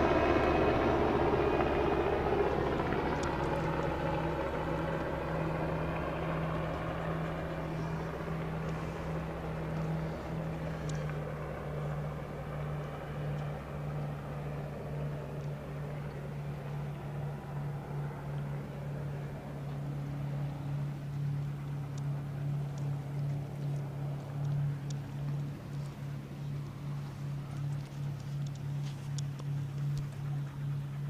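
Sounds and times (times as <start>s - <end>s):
low engine drone: 0.0s - 31.0s
faint clicks: 2.6s - 14.1s, 15.1s - 16.3s, 21.4s - 30.7s.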